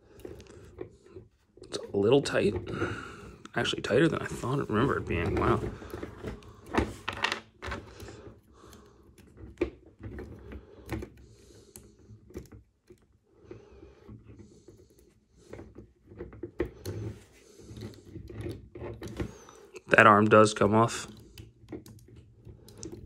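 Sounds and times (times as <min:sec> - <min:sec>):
small plastic clicks and taps: 0:21.1 - 0:23.0.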